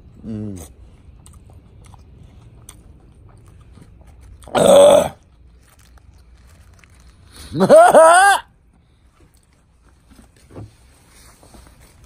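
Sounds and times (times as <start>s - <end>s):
man chewing: 0.0s - 12.0s
loud belch: 4.5s - 5.2s.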